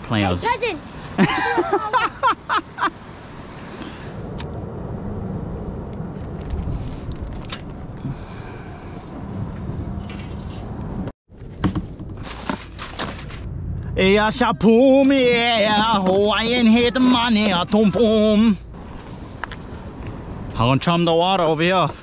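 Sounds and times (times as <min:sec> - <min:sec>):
wind on microphone: 0:03.5 - 0:11.1.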